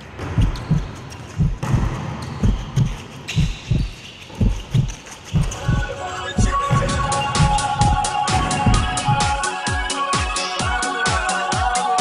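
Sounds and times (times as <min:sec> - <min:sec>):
heartbeat: 0:00.2 - 0:09.4.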